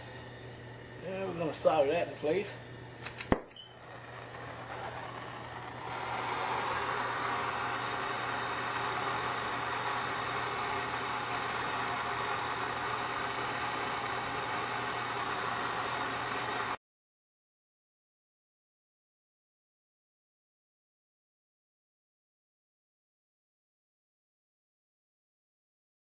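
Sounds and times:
gas torch flame hissing: 0:00.0 - 0:16.8.

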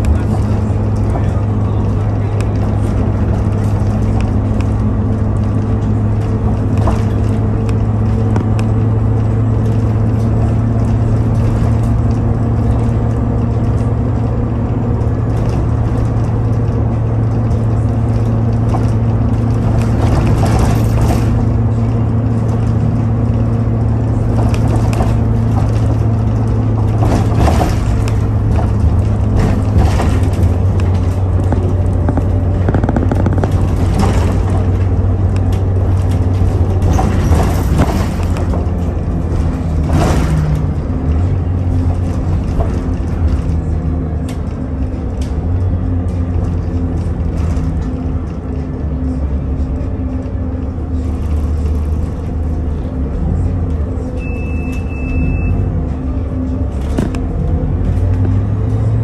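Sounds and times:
electric train hum: 0:00.0 - 0:59.0
train wheels clattering: 0:00.2 - 0:43.6.

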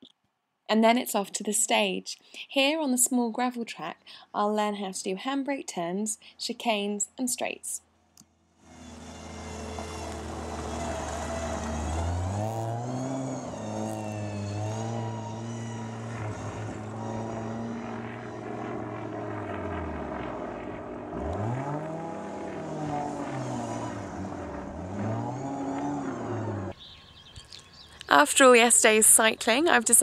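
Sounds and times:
rally car engine revving: 0:08.6 - 0:26.8.

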